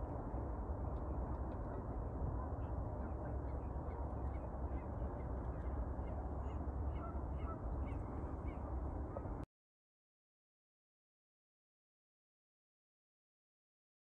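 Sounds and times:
steady low rumble: 0:00.0 - 0:09.4.

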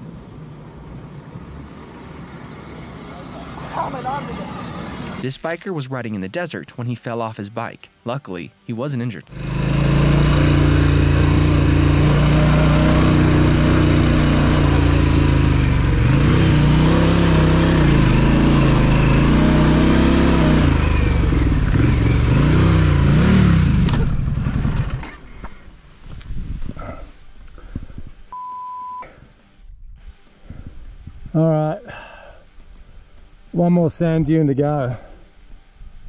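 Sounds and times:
motorcycle engine revving: 0:09.3 - 0:25.2.

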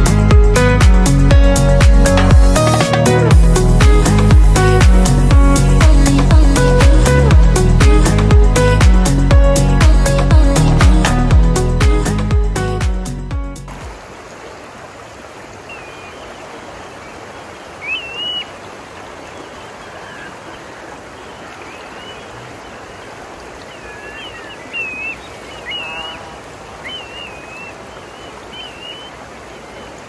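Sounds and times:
background music: 0:00.0 - 0:13.9
water rushing over rocks: 0:13.7 - 0:30.0
bird chirps: 0:15.6 - 0:16.4, 0:17.8 - 0:23.0, 0:23.6 - 0:30.0.

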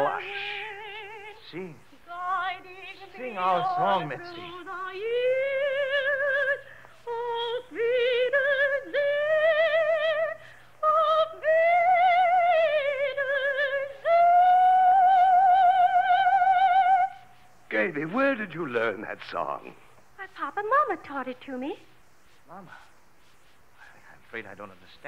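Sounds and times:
operatic soprano singing: 0:00.0 - 0:19.6
faint low hum: 0:00.0 - 0:25.0.

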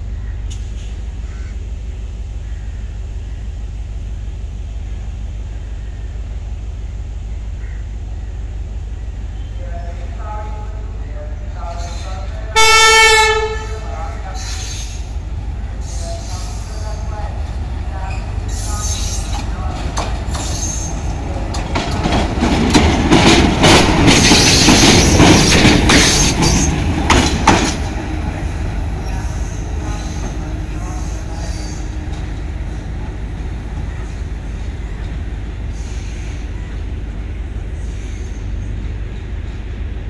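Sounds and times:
diesel locomotive engine rumble: 0:00.0 - 0:40.0
wheels clattering on track: 0:18.1 - 0:32.5.

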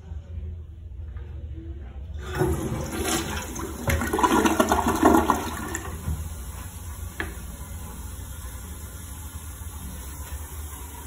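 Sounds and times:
toilet flushing water rushing: 0:02.2 - 0:11.0.

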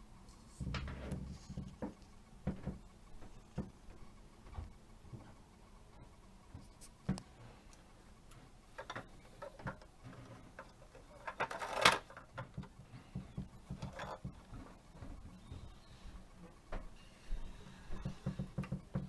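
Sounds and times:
plastic toy rattle: 0:10.5 - 0:12.3.

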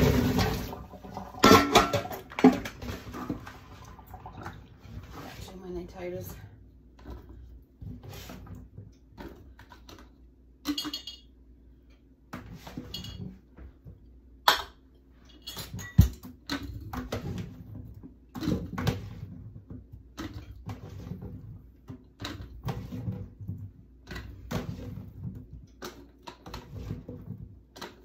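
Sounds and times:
glass jars clinking: 0:10.7 - 0:11.3.

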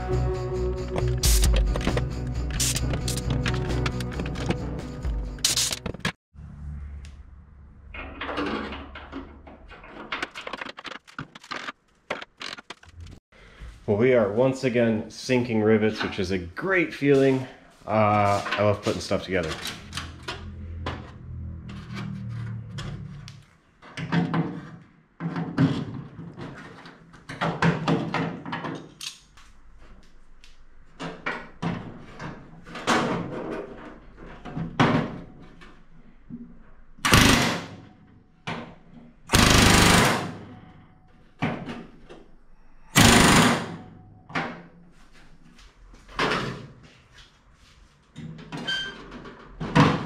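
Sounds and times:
hand tools clicking and clanking: 0:01.0 - 0:06.2
pneumatic rivet gun bursts: 0:02.6 - 0:03.2, 0:05.4 - 0:05.8, 0:39.3 - 0:40.4, 0:43.0 - 0:43.8.

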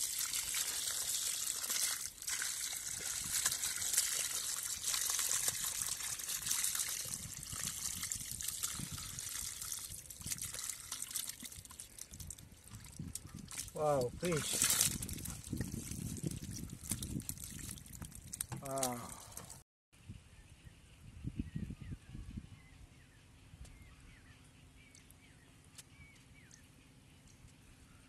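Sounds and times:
muddy water pouring and splashing: 0:00.0 - 0:19.6.

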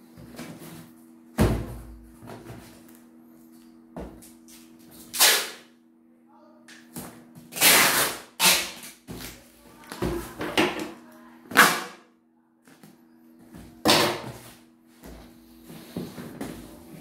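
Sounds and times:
packing tape tearing: 0:04.5 - 0:05.7, 0:07.5 - 0:09.4, 0:11.5 - 0:12.0.

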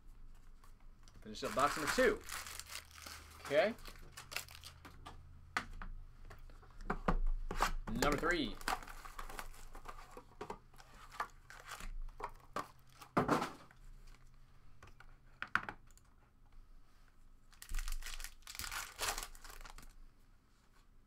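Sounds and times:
foil wrappers crinkling: 0:01.3 - 0:04.8, 0:17.5 - 0:20.0
foil pack tearing open: 0:01.5 - 0:04.8, 0:17.7 - 0:19.9.

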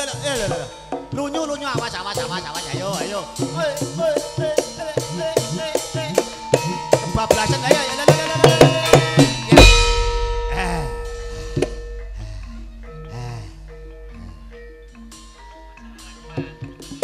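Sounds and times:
gamelan drum and kettle-gongs: 0:00.0 - 0:17.0
deep gong tone ringing: 0:09.2 - 0:16.1.

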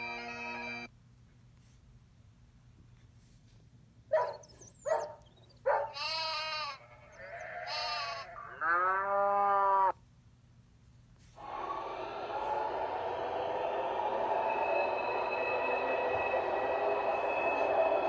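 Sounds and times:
recorded train sound: 0:00.0 - 0:01.0, 0:11.4 - 0:18.0
recorded animal calls: 0:04.3 - 0:10.0.

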